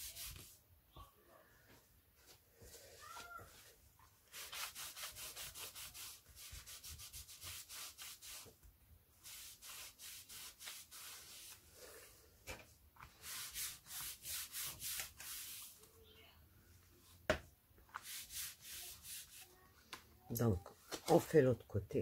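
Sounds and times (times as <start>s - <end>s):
cloth rubbing on paper: 0.0s - 0.6s, 3.5s - 8.5s, 9.2s - 11.7s, 13.1s - 15.8s, 17.9s - 19.6s.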